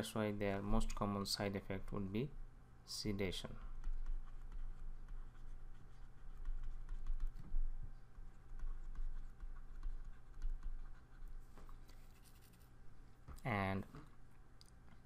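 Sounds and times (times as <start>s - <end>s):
steady low hum: 0.0s - 15.0s
stylus tapping on graphics tablet: 3.7s - 7.7s, 8.3s - 11.7s.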